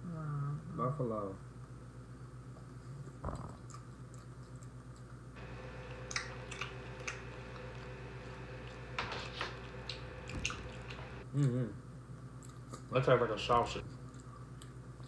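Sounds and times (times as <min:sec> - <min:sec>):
steady low hum: 0:00.0 - 0:12.5
chewing jerky: 0:03.4 - 0:11.2.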